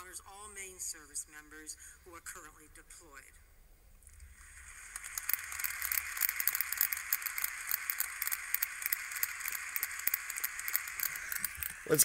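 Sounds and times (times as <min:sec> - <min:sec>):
audience applause through phone speaker: 0:04.3 - 0:12.0.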